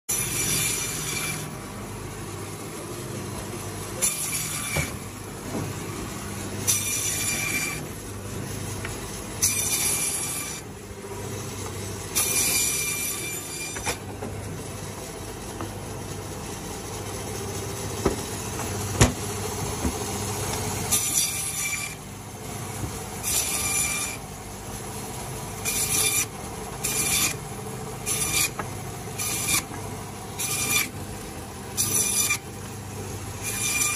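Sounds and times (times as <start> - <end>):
saw blade rasping through meat: 0.1 - 1.6, 6.7 - 7.9, 9.5 - 10.7, 25.5 - 29.7, 30.3 - 31.0, 31.7 - 32.6, 33.3 - 33.9
bandsaw motor hum: 0.1 - 33.9.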